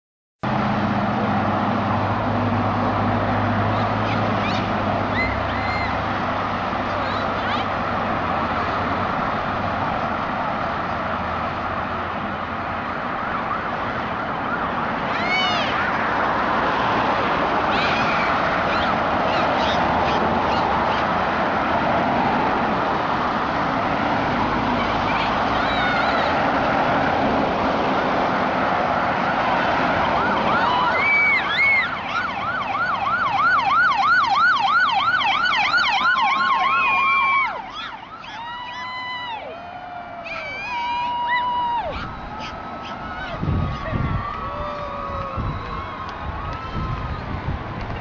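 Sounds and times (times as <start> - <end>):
passing vehicles road noise: 0.4 - 48.0
police siren yelping: 3.6 - 6.2, 17.6 - 21.2, 29.2 - 47.6.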